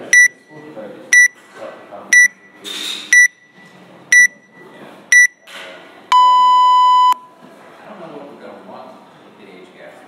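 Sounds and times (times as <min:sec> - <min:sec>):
short high beeps: 0:02.2 - 0:05.4, 0:06.1 - 0:07.3
longer lower beep: 0:06.1 - 0:07.3.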